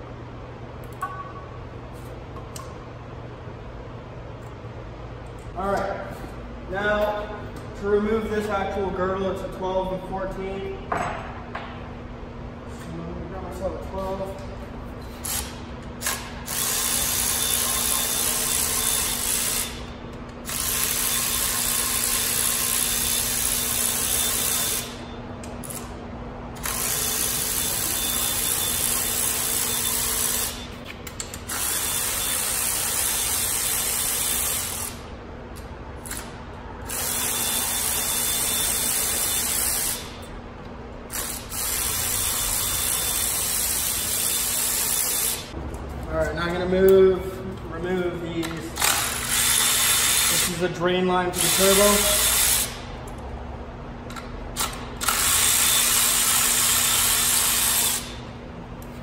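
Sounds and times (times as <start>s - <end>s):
electric ratchet whining: 15.2s - 25.0s, 26.6s - 35.0s, 36.0s - 40.2s, 41.1s - 45.5s, 48.8s - 50.6s, 54.6s - 58.2s.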